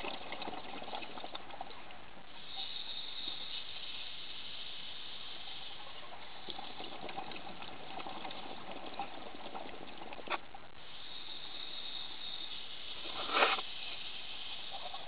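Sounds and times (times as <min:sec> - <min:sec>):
underwater bubbles gurgling: 0:00.0 - 0:02.3, 0:05.8 - 0:10.5
steady hiss: 0:01.8 - 0:07.0, 0:10.2 - 0:15.0.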